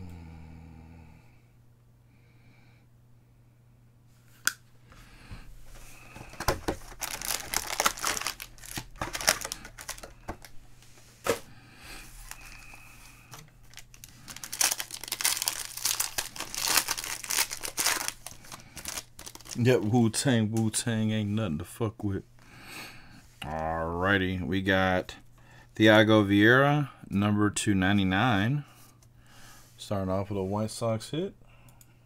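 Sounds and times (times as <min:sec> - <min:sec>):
foil wrappers crinkling: 0:05.8 - 0:10.6, 0:12.1 - 0:20.0
foil packs being torn open: 0:06.1 - 0:10.5, 0:12.2 - 0:19.7.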